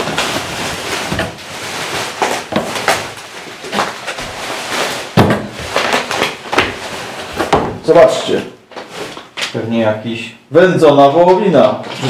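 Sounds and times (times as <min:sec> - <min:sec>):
bubble wrap rustling and crinkling: 0:00.0 - 0:09.9.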